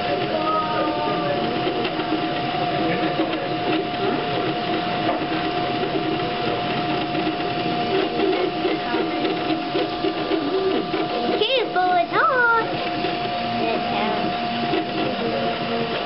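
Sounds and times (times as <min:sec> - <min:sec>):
cooling fan hum: 0:00.0 - 0:16.0
stepper motors whirring: 0:00.0 - 0:16.0.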